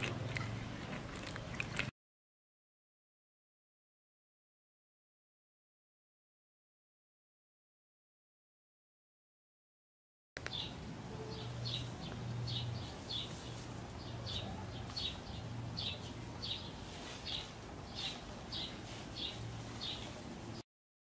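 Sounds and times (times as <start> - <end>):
bird chirping: 10.4 - 20.6.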